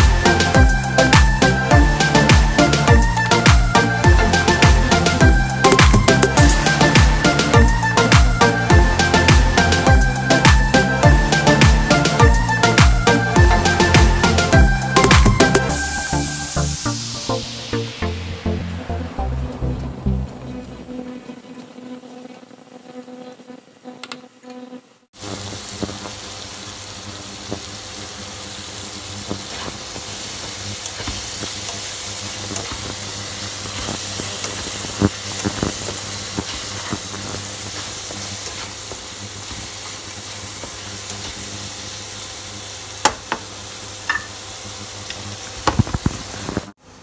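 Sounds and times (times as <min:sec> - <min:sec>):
mushrooms sizzling in a pan: 0:25.2 - 0:46.8.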